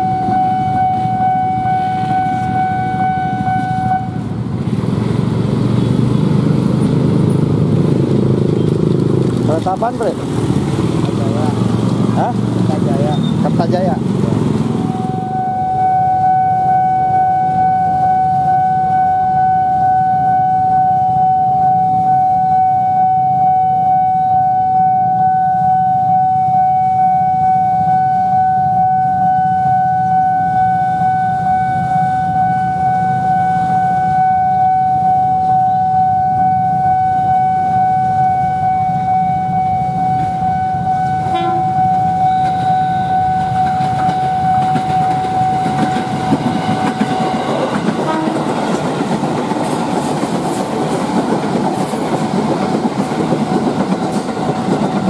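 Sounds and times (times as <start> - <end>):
level crossing alarm tone: 0.0 - 4.3, 14.8 - 48.8
electric train rumble: 0.0 - 55.0.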